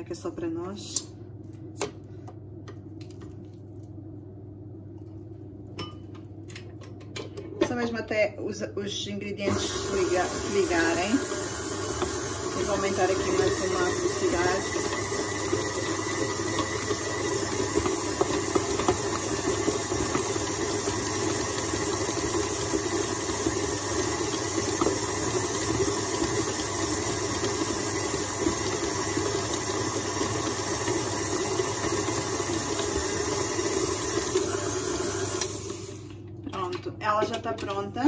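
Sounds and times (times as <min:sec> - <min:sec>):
stand mixer beating dough: 0:09.5 - 0:36.2.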